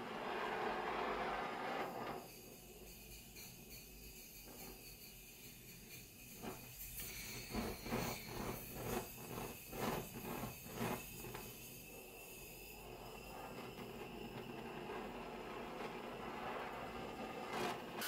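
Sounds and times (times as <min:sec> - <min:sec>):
blowtorch hissing: 0:00.0 - 0:18.0
blowtorch flame puffs and pops: 0:07.5 - 0:18.0.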